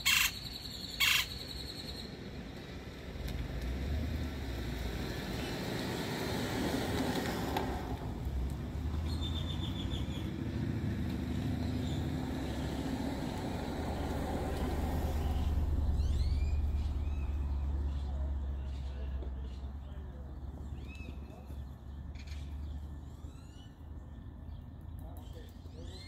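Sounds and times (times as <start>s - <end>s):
small birds chirping: 0.0s - 2.2s, 8.4s - 26.0s
road traffic rumble: 0.0s - 26.0s.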